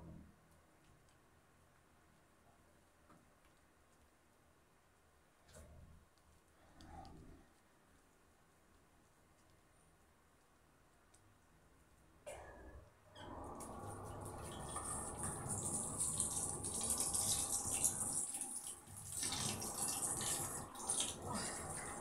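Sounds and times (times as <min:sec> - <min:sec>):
tap water running into sink: 0:13.2 - 0:22.0.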